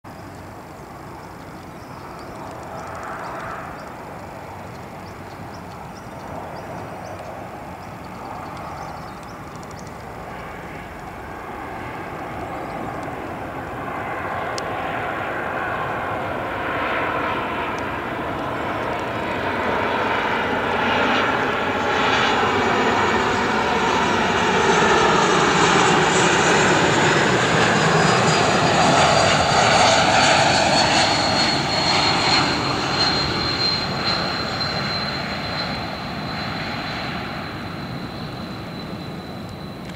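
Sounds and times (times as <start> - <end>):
airliner turbofan engines approaching: 0.1 - 39.9
high engine whine falling in pitch: 17.6 - 39.9.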